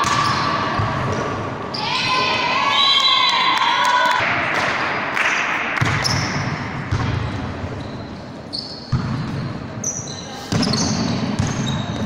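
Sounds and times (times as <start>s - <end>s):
reverberant hall hum: 0.0s - 12.0s.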